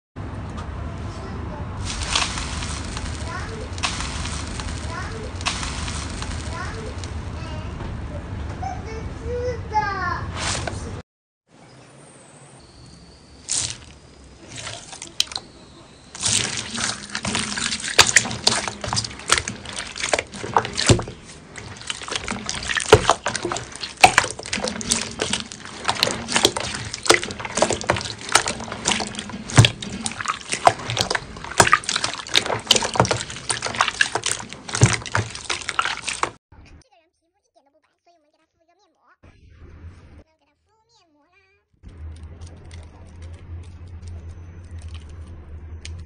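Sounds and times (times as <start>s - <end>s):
crackling pops: 1.8s - 7.2s
slime squelching and sloshing: 1.8s - 7.3s, 13.4s - 36.4s.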